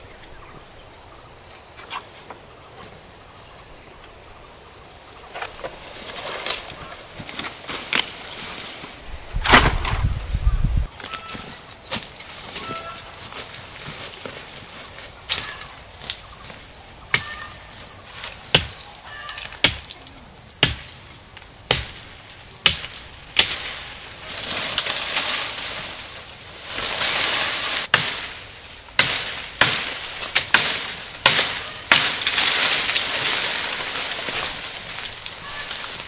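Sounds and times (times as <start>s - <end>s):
leaves and branches rustling: 0.0s - 36.0s
machete chopping wood: 9.4s - 10.0s, 18.5s - 18.8s, 19.6s - 19.9s, 20.6s - 20.9s, 21.7s - 22.0s, 22.6s - 23.7s, 27.9s - 28.3s, 29.0s - 32.6s.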